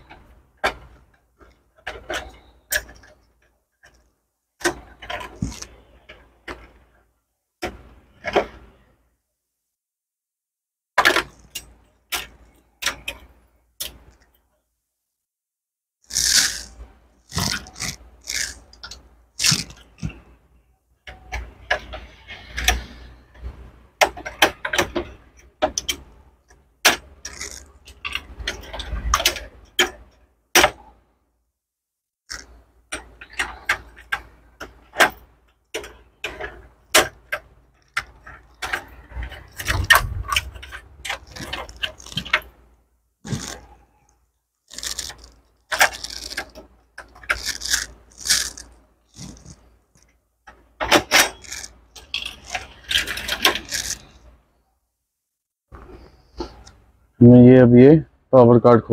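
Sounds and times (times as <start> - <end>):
plastic and metal parts rattling: 0.0 - 6.9, 11.0 - 14.4, 16.0 - 31.0, 32.3 - 42.7, 43.3 - 54.4.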